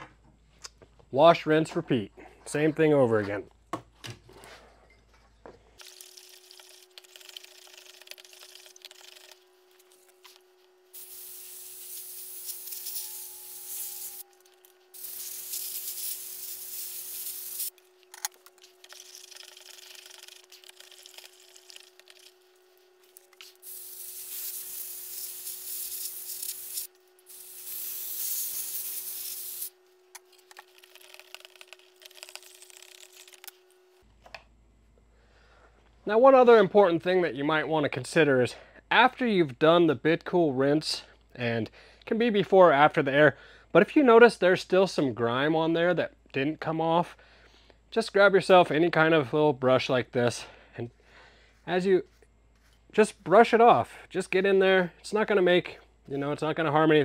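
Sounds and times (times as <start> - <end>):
faint steady hum: 0.0 - 57.0
rubbing and handling sounds: 5.7 - 34.0, 51.4 - 53.4
compressed air blow gun hissing: 11.0 - 14.2, 14.9 - 17.7, 23.4 - 29.7.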